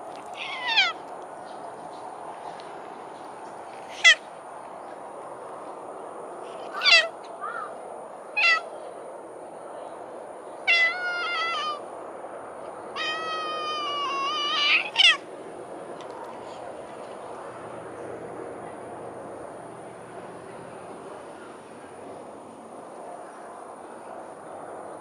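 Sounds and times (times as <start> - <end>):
cat meowing: 0.3 - 1.0, 6.7 - 7.1, 8.4 - 8.6, 10.7 - 11.8, 13.0 - 15.2.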